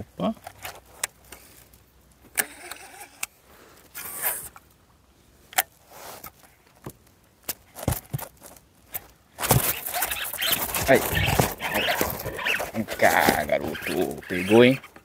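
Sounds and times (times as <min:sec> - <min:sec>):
short rushing scrape: 0:09.4 - 0:14.6.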